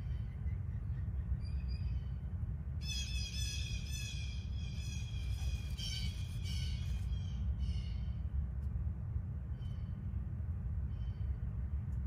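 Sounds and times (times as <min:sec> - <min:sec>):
steady low rumble: 0:00.0 - 0:12.0
high thin bird calls: 0:02.9 - 0:08.2.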